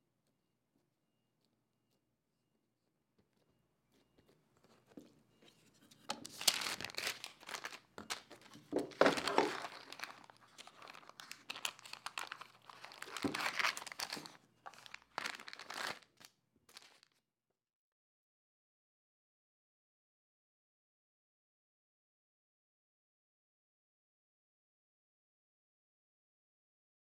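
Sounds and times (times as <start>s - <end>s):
baking paper crinkling: 6.0s - 17.2s.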